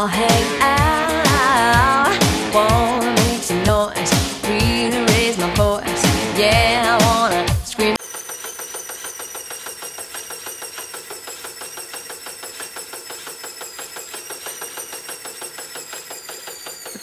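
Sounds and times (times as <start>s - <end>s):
exercise bike flywheel whirring: 8.0s - 17.0s.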